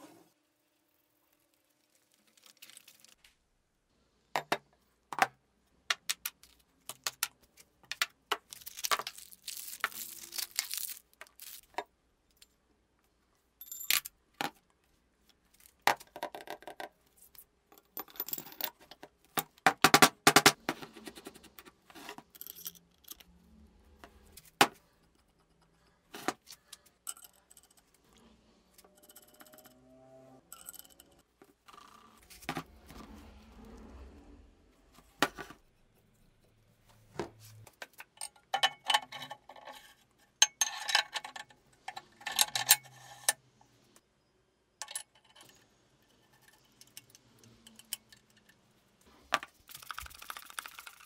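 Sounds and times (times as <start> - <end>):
metal parts clinking: 8.4 - 11.7, 22.1 - 23.4, 26.4 - 28.1, 28.8 - 29.8, 40.4 - 43.3
metal scraping: 27.4 - 37.7.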